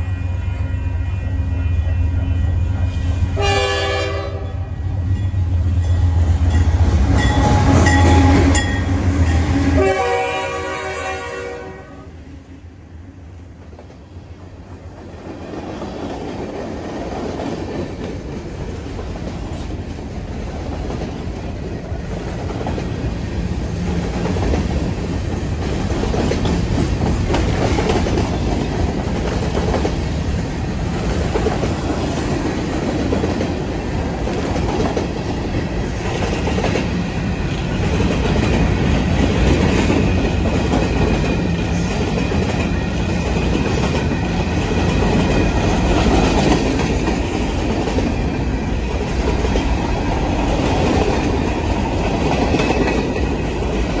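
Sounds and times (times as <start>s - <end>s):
freight train wheels rumbling: 0.0s - 54.0s
clickety-clack over rail joints: 13.6s - 30.2s, 30.8s - 54.0s.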